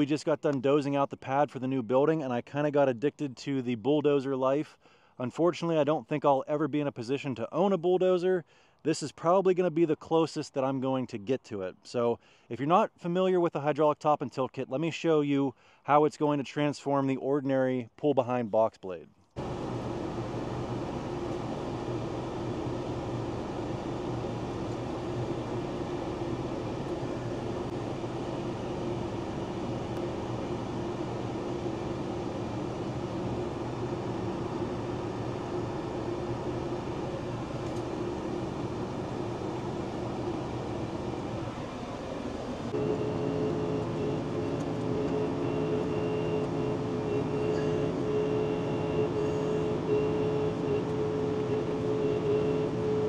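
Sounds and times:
diesel tractor running: 19.4s - 53.0s
steady higher tone: 19.4s - 53.0s.

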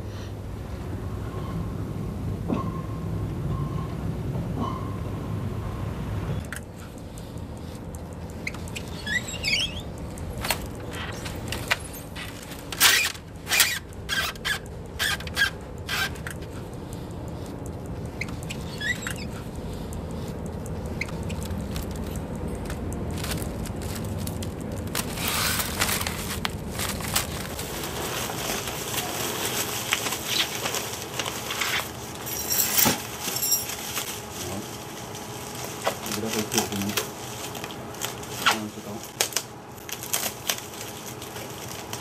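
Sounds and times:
low steady rumble: 0.0s - 30.0s
bubble wrap crinkling: 8.4s - 16.6s, 21.0s - 42.0s.

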